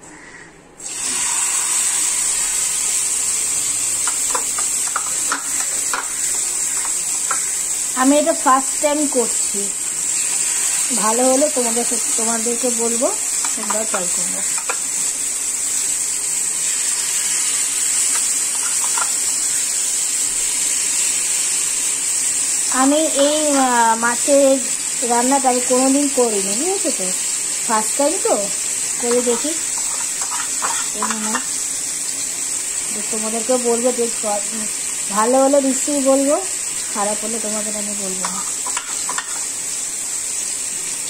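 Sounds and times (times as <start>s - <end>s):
fish sizzling in hot oil: 0.8s - 41.0s
oil spitting and crackling: 1.8s - 7.9s, 16.9s - 19.5s, 28.9s - 31.6s, 38.2s - 39.6s.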